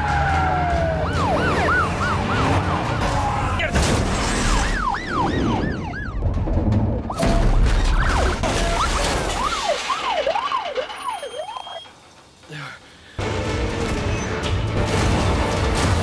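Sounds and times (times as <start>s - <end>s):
police sirens wailing: 0.0s - 12.1s.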